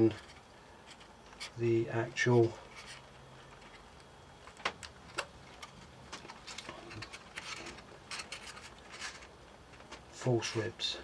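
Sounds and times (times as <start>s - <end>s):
balsa wood clicks and scratches: 0.0s - 10.8s.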